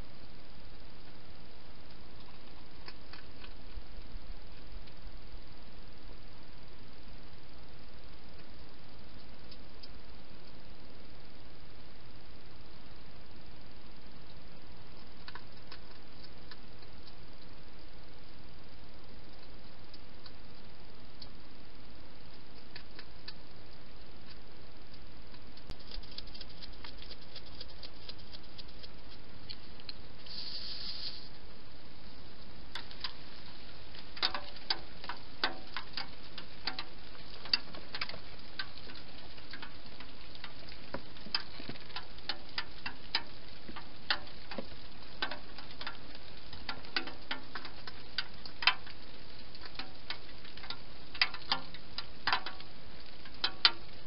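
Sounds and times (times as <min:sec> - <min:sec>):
steady hiss: 0:00.0 - 0:54.0
hedgehog chewing clicks: 0:25.3 - 0:30.0.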